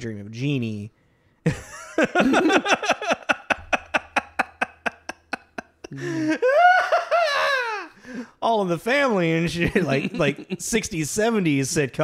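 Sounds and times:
men laughing: 1.5s - 8.2s, 9.5s - 11.1s.

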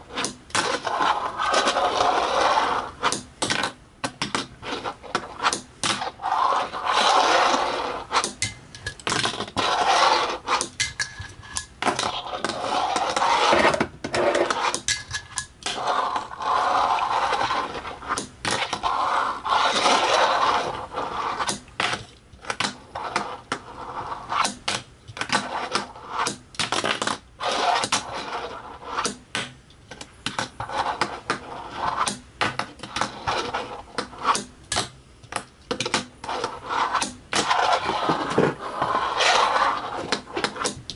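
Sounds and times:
fingerboard wheels rattling on wood: 36.3s - 40.8s.

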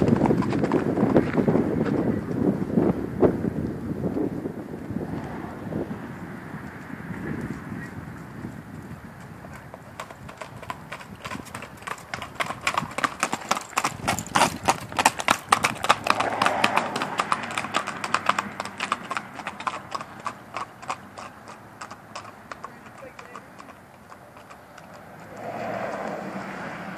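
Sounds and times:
horse hoofbeats on gravel: 0.0s - 2.8s, 8.2s - 26.2s.

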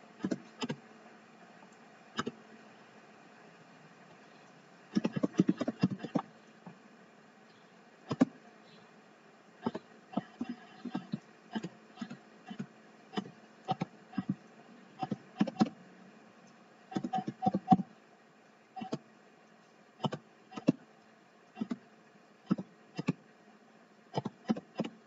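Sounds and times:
keyboard typing: 4.9s - 6.3s, 9.6s - 15.8s, 16.9s - 17.9s, 20.0s - 20.8s, 24.2s - 25.0s.

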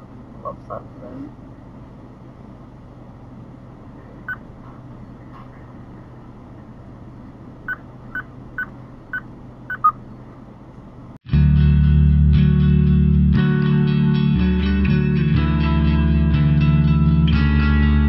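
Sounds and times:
short electronic beeps: 4.3s - 4.5s, 7.7s - 10.0s
guitar music: 11.3s - 18.0s.

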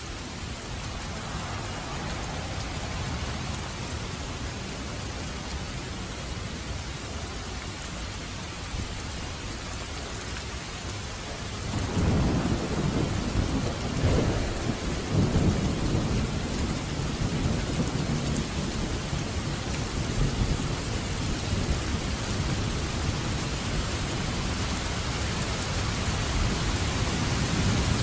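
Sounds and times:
rain hiss: 0.0s - 28.0s
low roll of thunder: 11.5s - 28.0s.

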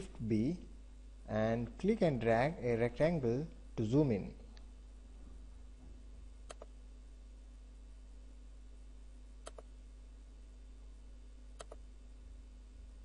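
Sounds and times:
faint steady hum: 0.0s - 13.0s
computer mouse clicks: 6.5s - 6.7s, 9.4s - 9.7s, 11.6s - 11.8s.

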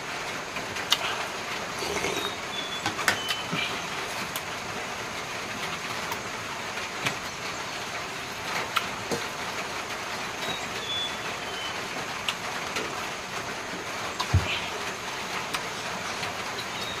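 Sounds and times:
chewing: 0.9s - 2.4s.

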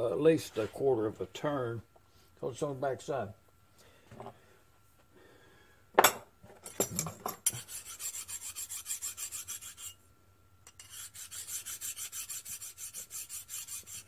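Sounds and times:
metal part handling knocks: 6.0s - 7.4s
hand file scraping on steel: 7.5s - 10.0s, 10.7s - 14.0s.

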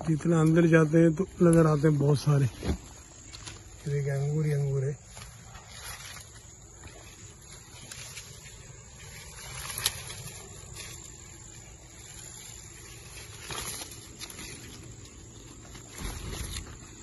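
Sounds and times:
leaves rustling against phone: 0.0s - 17.0s.

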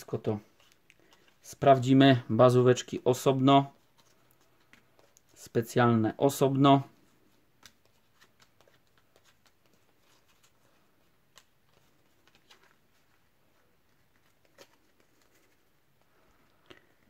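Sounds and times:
trading cards clicking and rustling: 3.8s - 5.4s, 7.2s - 16.1s.

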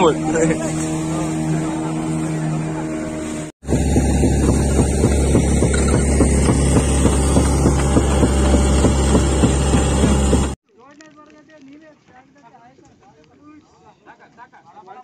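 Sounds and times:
boat engine low rumble: 0.0s - 10.6s.

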